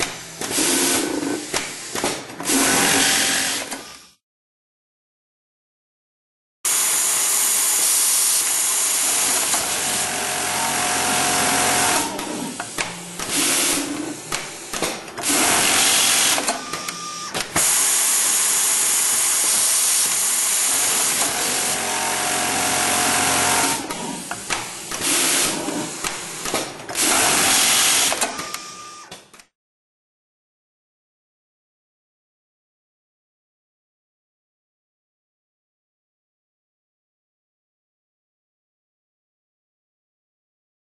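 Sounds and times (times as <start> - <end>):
industrial sewing machine stitching: 2.4 - 3.8, 6.7 - 28.7.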